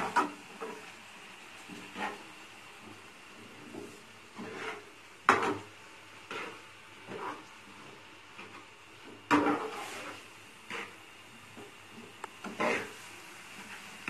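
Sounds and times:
metal spatula scraping pan: 4.4 - 5.7, 6.3 - 7.5, 9.3 - 11.0, 12.4 - 13.0.

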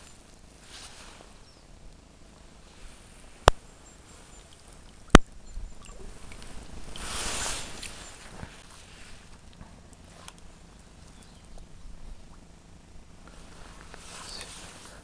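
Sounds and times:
water splashing: 4.4 - 12.5.

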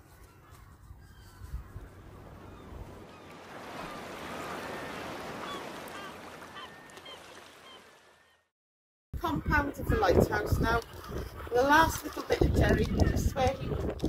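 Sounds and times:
short bird calls: 0.2 - 8.4
wind rumbling on microphone: 9.2 - 14.0.

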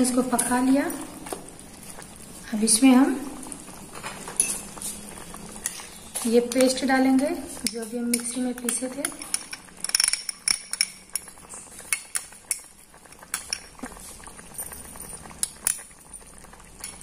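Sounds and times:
gravy simmering with pops: 0.0 - 17.0
metal spoon clinking on pot: 4.4 - 4.7, 7.6 - 11.3.

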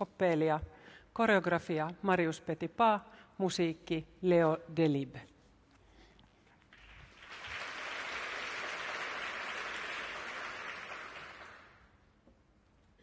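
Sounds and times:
audience applauding: 6.8 - 11.9.

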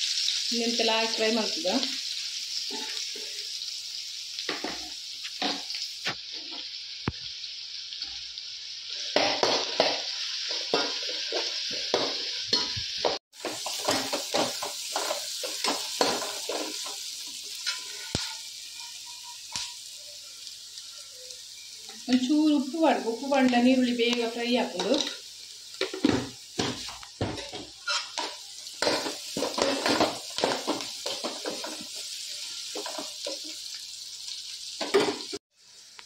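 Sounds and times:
onions sizzling in hot oil: 0.0 - 36.0
ladle scraping metal wok: 27.4 - 28.3.

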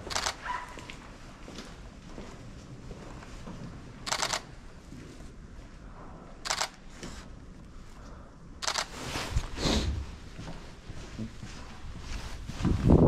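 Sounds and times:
jacket sleeve scraping camera: 8.6 - 10.0.

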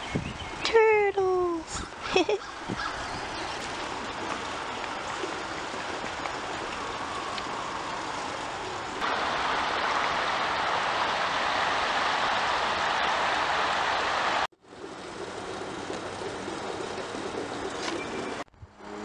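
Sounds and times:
stream flowing over rocks: 3.2 - 18.4.

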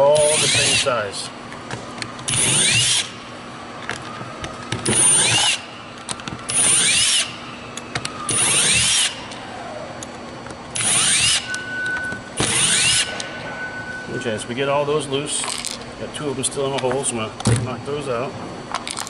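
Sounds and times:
cordless drill motor whine: 0.2 - 1.0, 2.3 - 10.1, 10.8 - 14.4.

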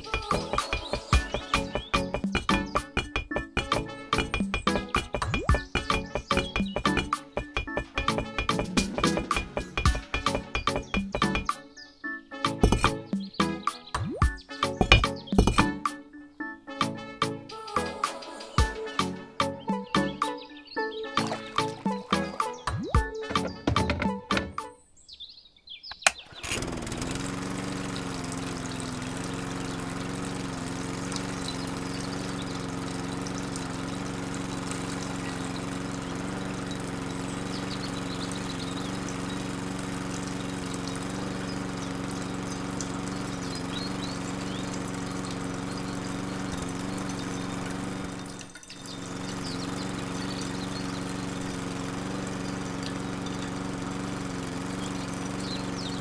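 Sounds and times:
water pouring from tube: 0.0 - 11.4, 21.2 - 23.0
water pump motor hum: 0.0 - 11.7, 12.5 - 15.9, 21.1 - 24.6, 26.1 - 56.0.

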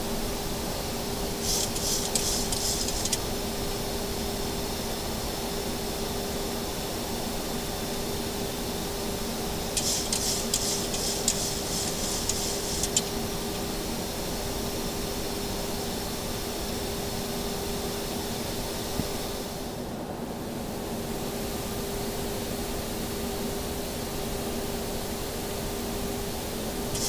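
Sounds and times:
cockpit hiss and hum: 0.0 - 5.7, 8.7 - 15.9, 26.4 - 27.0.

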